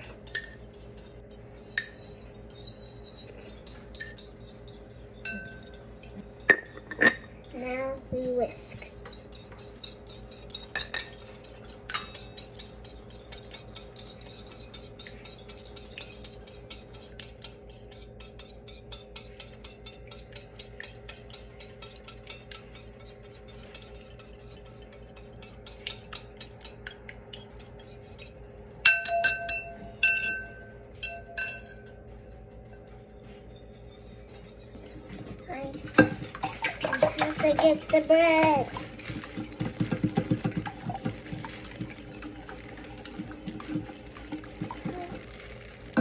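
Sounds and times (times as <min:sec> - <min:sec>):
whisk clinking against bowl: 0:00.0 - 0:46.0
whisk clicking in bowl: 0:08.8 - 0:29.6, 0:34.3 - 0:46.0.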